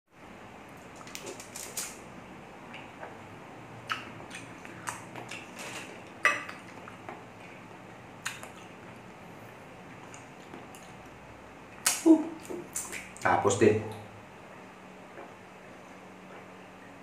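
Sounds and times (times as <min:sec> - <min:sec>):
soft chewing clicks: 0:03.8 - 0:05.5, 0:06.5 - 0:09.1, 0:09.8 - 0:11.2.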